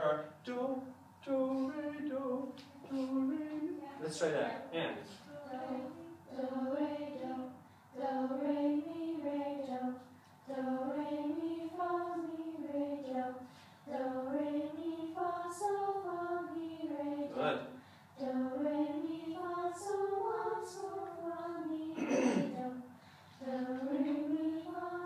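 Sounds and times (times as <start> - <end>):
choir of young voices singing: 0.8 - 25.0.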